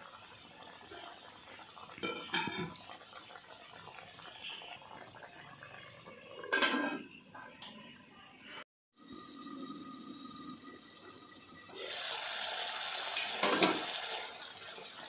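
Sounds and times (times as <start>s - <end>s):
curry bubbling in a wok: 0.0s - 6.8s.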